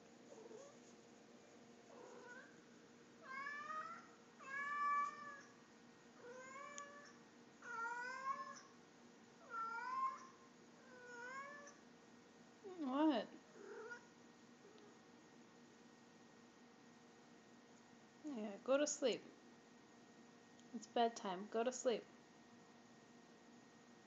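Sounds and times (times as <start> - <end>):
cat meowing: 3.2 - 5.5.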